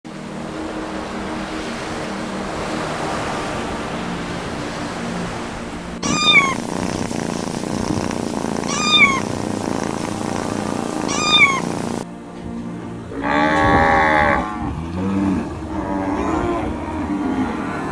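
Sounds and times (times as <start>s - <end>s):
steady background hiss: 5.7s - 12.2s
kitten meowing: 6.0s - 12.0s.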